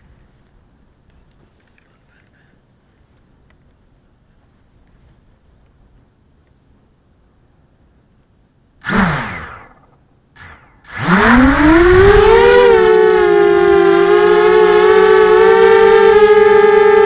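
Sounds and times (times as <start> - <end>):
drone motors whining: 8.8 - 17.0.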